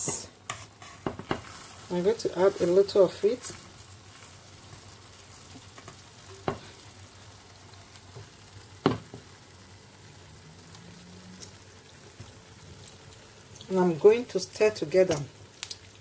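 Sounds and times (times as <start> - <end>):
stew sizzling in pan: 0.0 - 16.0
wooden spoon knocking on pan: 1.0 - 1.5, 5.8 - 6.7, 8.2 - 9.3.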